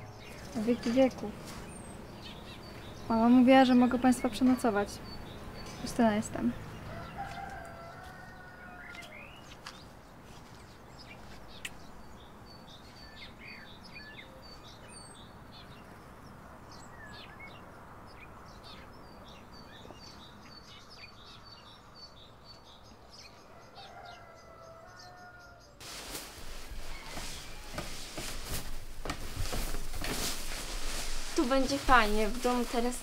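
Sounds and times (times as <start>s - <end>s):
small birds chirping: 0.0s - 33.0s
steady background hiss: 25.8s - 33.0s.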